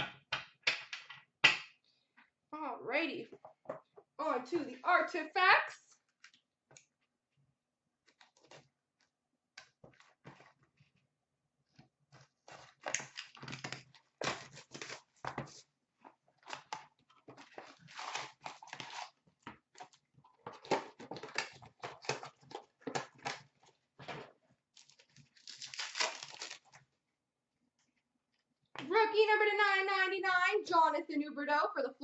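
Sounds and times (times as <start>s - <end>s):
wrapper tearing and crinkling: 17.6s - 19.2s, 24.8s - 26.8s.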